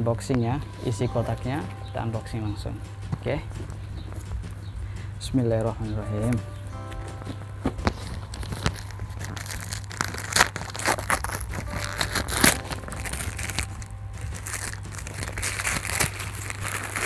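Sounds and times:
paper crinkling and tearing: 0:07.1 - 0:17.0.

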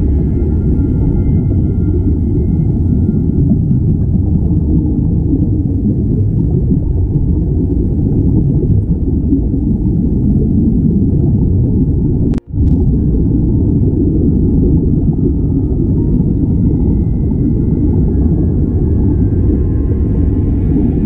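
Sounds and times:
streaming air bubbles: 0:00.0 - 0:21.0
underwater rumble: 0:00.0 - 0:21.0.

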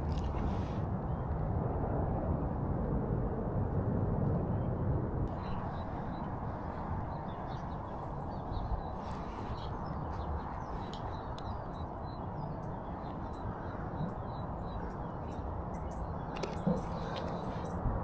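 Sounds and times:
steady low rumble: 0:00.0 - 0:18.0
small birds chirping: 0:05.3 - 0:17.8.

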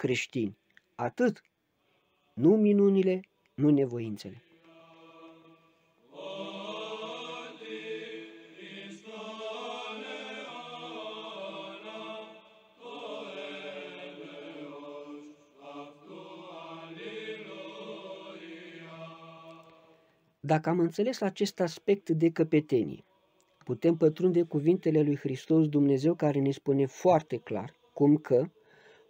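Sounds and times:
slow sung chant: 0:01.8 - 0:20.5, 0:22.7 - 0:25.0, 0:27.0 - 0:29.0.

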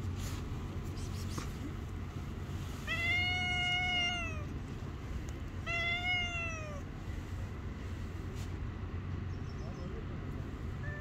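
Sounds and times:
cat meowing: 0:02.8 - 0:04.5, 0:05.6 - 0:06.9, 0:10.8 - 0:11.0.

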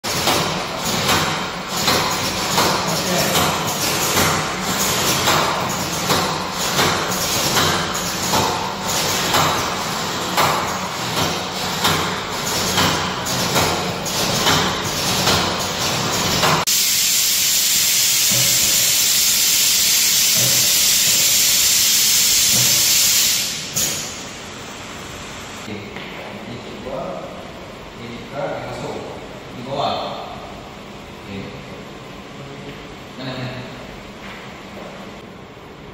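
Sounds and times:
pressure venting hiss: 0:16.7 - 0:24.1.

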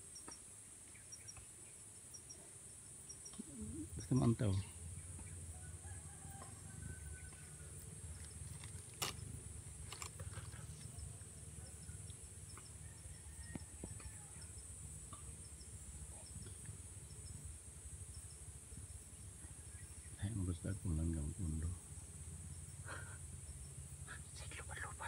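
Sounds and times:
insects droning: 0:00.0 - 0:25.0
small chirps: 0:00.1 - 0:05.3.

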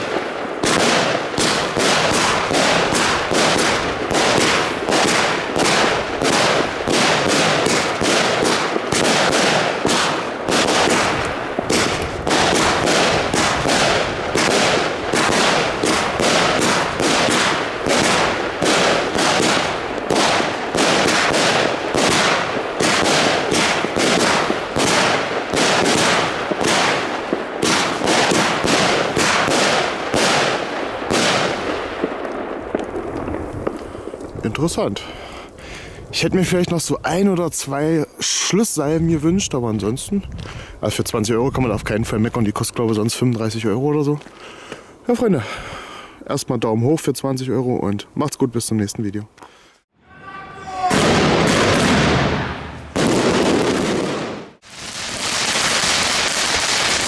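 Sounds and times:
firework cake firing rapid shots: 0:00.0 - 0:33.7, 0:50.8 - 0:57.0.

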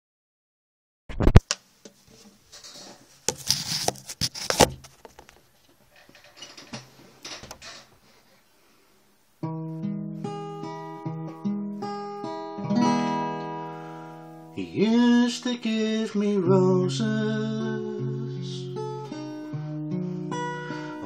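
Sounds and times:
camera handling knocks and rustling: 0:01.5 - 0:05.4
acoustic guitar picking: 0:09.4 - 0:21.0.

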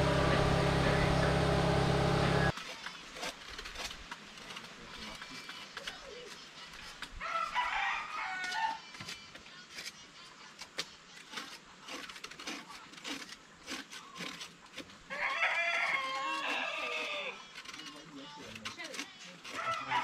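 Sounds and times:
knives peeling roots: 0:02.5 - 0:07.1, 0:10.6 - 0:20.0
rooster crowing: 0:07.2 - 0:08.9, 0:15.1 - 0:17.4, 0:19.6 - 0:20.0.

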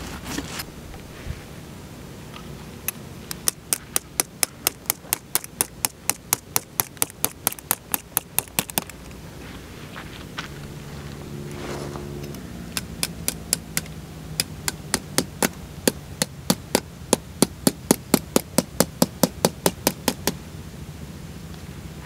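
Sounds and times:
hammer striking tent stake: 0:03.3 - 0:08.9, 0:12.7 - 0:20.4.

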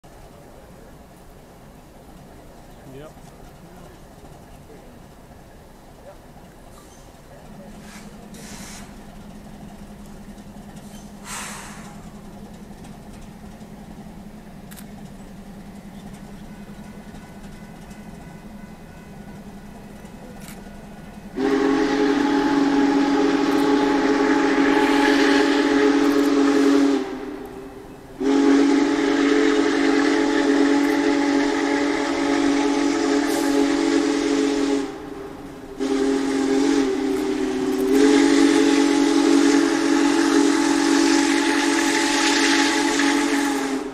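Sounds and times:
steam whistle blowing a chord: 0:21.3 - 0:43.9.

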